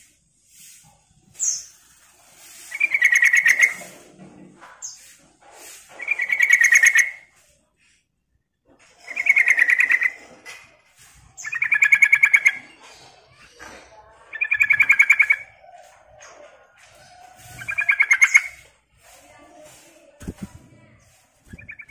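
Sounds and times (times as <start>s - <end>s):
bird singing chattering phrases: 2.6s - 3.9s, 6.0s - 7.2s, 9.0s - 10.2s, 11.3s - 15.9s, 17.4s - 18.7s, 21.4s - 21.9s.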